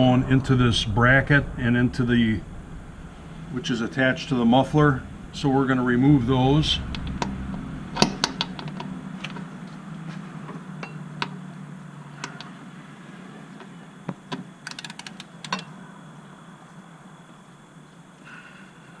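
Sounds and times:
steady low hum: 0:00.0 - 0:14.6.

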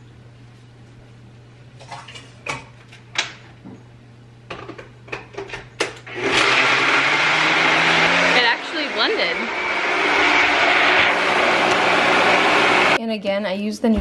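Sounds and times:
blender motor whirring with ice: 0:06.0 - 0:13.0.

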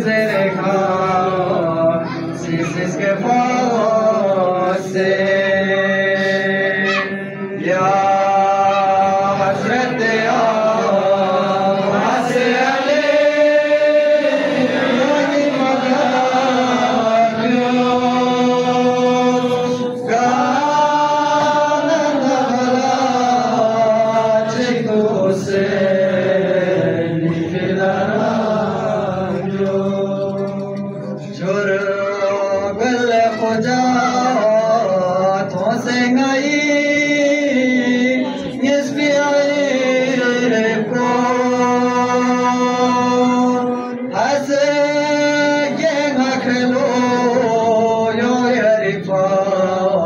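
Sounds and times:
man chanting unaccompanied: 0:00.0 - 0:50.0.

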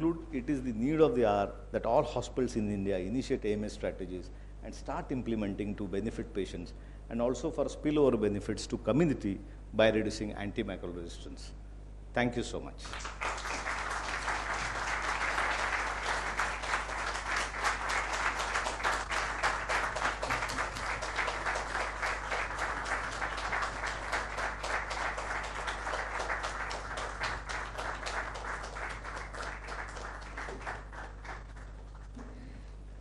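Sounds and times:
audience applauding: 0:12.8 - 0:32.3.

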